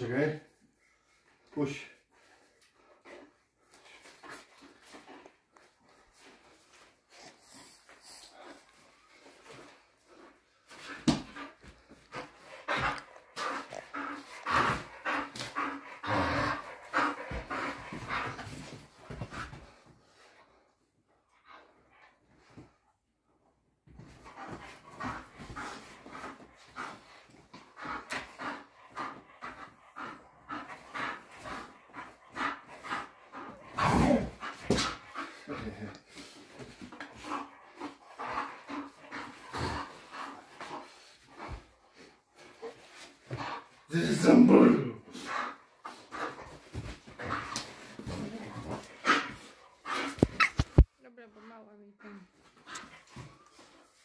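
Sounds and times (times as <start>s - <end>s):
dog panting: 0.2s - 22.8s, 23.9s - 44.3s, 45.0s - 54.0s
dog vocal noises: 42.6s - 50.9s.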